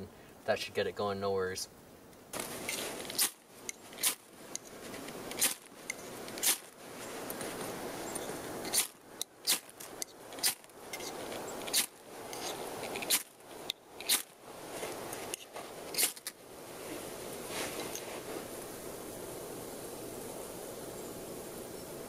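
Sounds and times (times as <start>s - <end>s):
ferro rod scraping: 2.3s - 18.6s
bark rustling and tearing: 2.4s - 18.6s.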